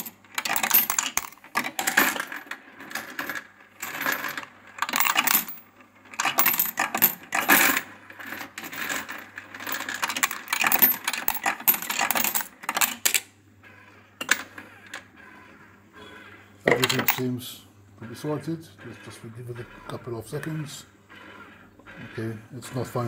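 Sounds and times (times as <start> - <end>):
coins clattering through sorter: 0.0 - 13.3, 14.2 - 15.1, 16.7 - 17.4
sorter motor humming: 13.6 - 23.0.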